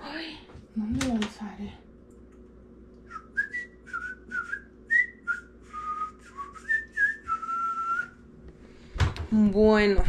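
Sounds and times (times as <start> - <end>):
person whistling a tune: 3.1 - 8.2.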